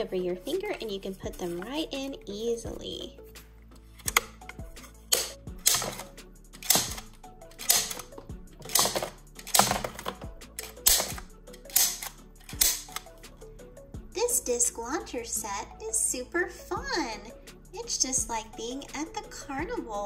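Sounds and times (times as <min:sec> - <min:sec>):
soft background music: 0:00.0 - 0:20.0
plastic disc launcher clacking: 0:04.0 - 0:13.1.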